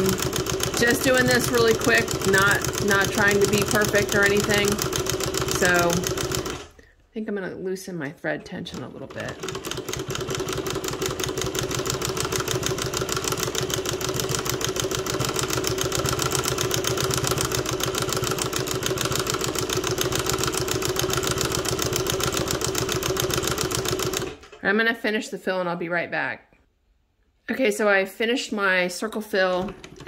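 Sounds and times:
embroidery machine stitching: 0.0 - 6.8, 8.4 - 24.5, 29.5 - 30.0.

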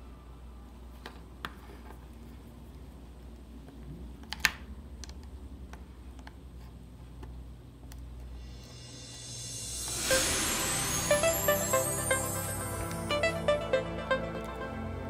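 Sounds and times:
steady low hum: 5.3 - 15.0.

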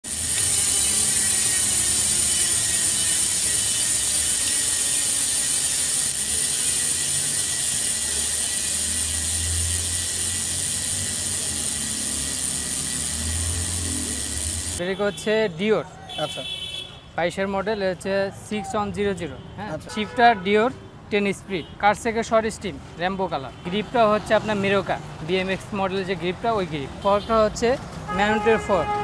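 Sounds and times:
bicycle freehub ratchet clicking: 0.0 - 14.8.

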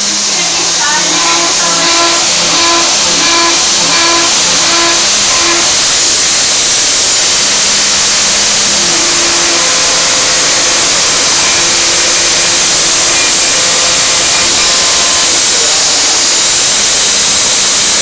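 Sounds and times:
router spindle whining: 0.0 - 18.0.

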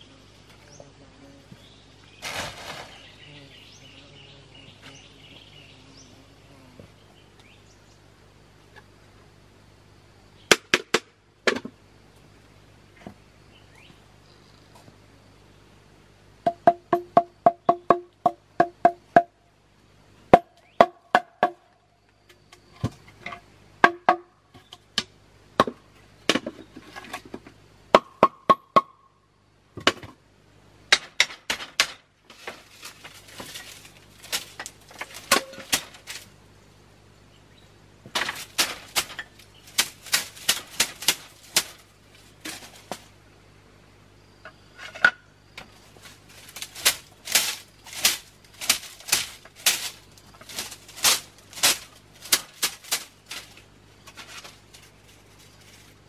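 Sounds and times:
faint low hum: 0.0 - 28.2, 28.8 - 56.0
bamboo and wood clicking: 30.9 - 36.4, 38.1 - 43.1, 44.4 - 56.0.

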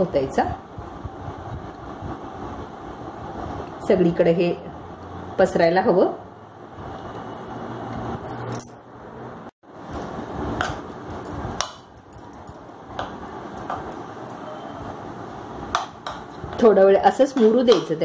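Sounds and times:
sharp clinks: 8.3 - 8.8, 9.7 - 12.9.

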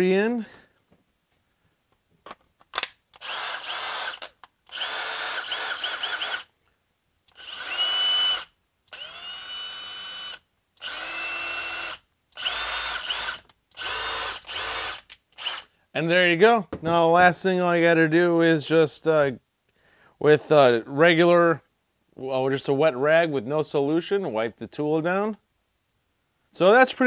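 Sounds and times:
impact driver motor whine: 3.2 - 6.5, 7.3 - 15.6.

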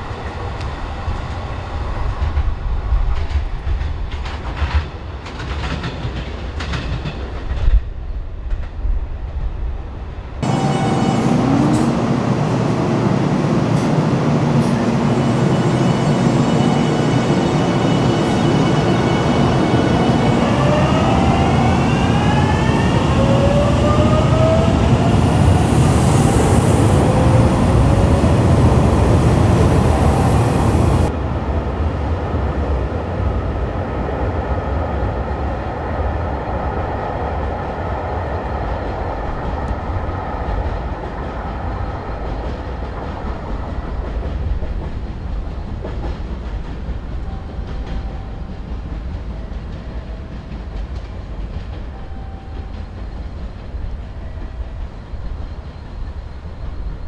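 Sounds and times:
train rumble: 0.0 - 57.0
train wheel clatter: 2.0 - 9.0, 38.8 - 57.0.

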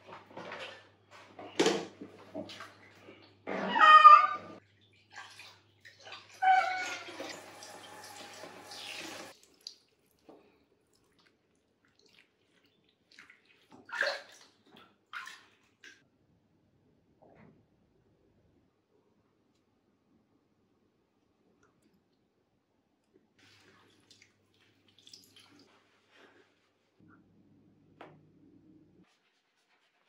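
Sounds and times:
water splashing in a plastic tub: 1.4 - 3.4, 4.6 - 16.0, 23.4 - 26.1.

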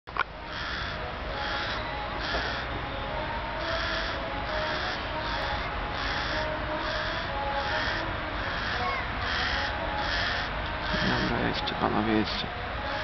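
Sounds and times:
crow cawing: 0.5 - 2.7, 3.6 - 11.3.

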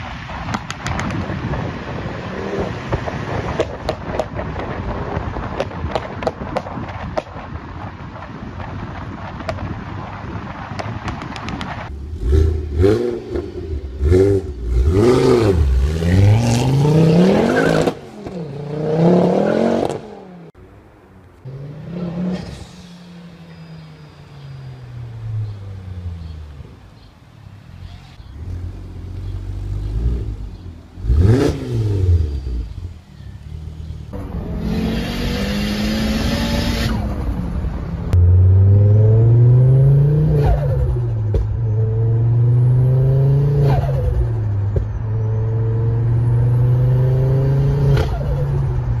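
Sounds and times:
car engine revving through gears: 12.1 - 20.6, 28.5 - 32.8, 34.1 - 37.2, 38.1 - 41.1, 41.7 - 44.4, 45.2 - 48.7.

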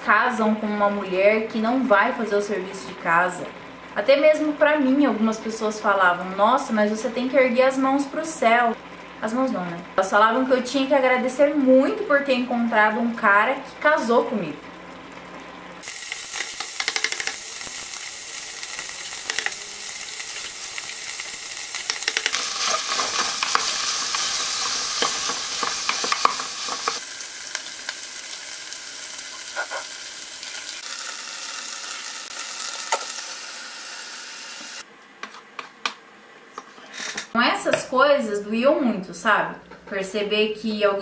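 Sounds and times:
meat sizzling in a pot: 10.0 - 34.8
spoon knocking against pot: 16.8 - 17.4
wooden spoon scraping a pot: 22.1 - 27.0.

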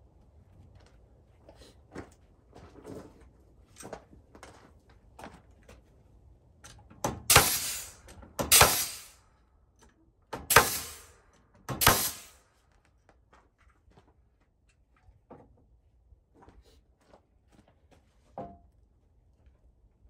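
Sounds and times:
nail gun firing: 7.0 - 9.2, 10.4 - 12.4.

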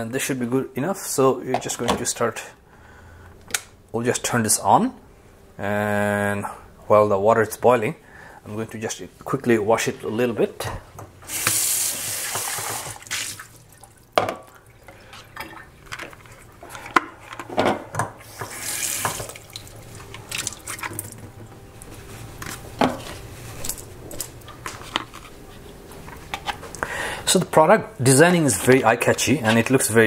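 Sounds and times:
tap water running into sink: 11.3 - 14.6, 18.2 - 21.0.

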